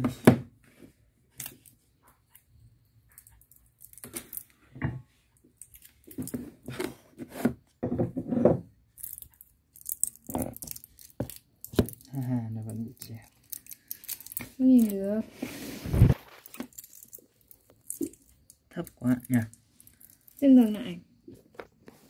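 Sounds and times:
objects handled on wooden table: 5.8 - 8.8.

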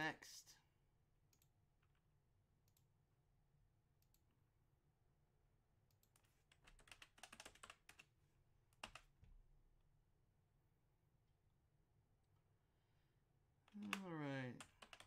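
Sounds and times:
typing on computer keyboard: 5.9 - 8.1, 8.8 - 9.1, 13.7 - 15.0.

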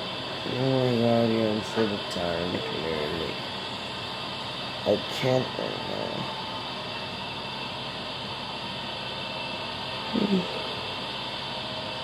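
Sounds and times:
short low vocal sound: 10.1 - 10.7.

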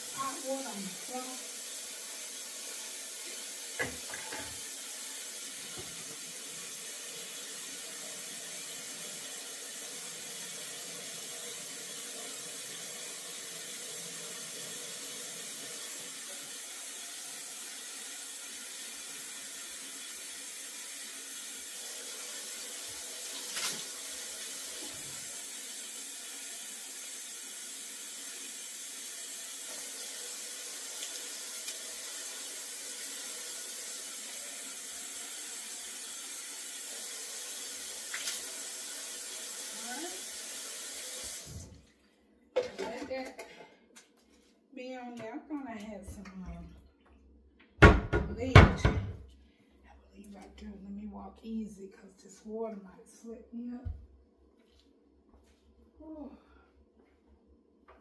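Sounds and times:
kitchen faucet running: 0.0 - 42.0.

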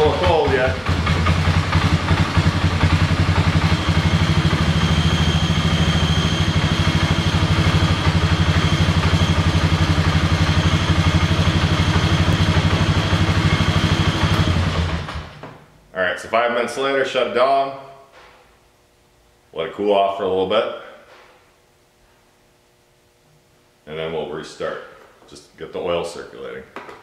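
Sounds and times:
atv engine idling: 0.0 - 15.4
faint high whine: 3.6 - 12.4.

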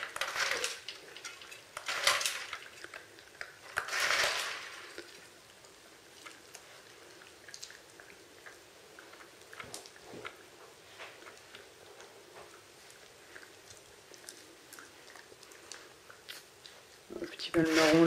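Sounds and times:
plastic toy car clattering on tiles: 0.0 - 2.9, 3.7 - 5.0.

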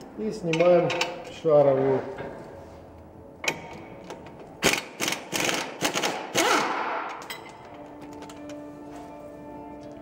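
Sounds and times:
wrench clicking and rattling: 4.2 - 8.6.

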